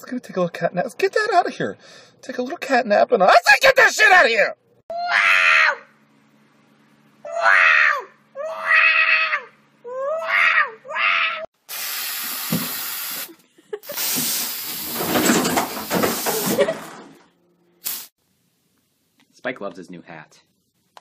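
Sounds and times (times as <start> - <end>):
cat yowling: 4.9 - 5.9, 7.3 - 11.5
steady hiss: 11.6 - 16.6, 17.8 - 18.2.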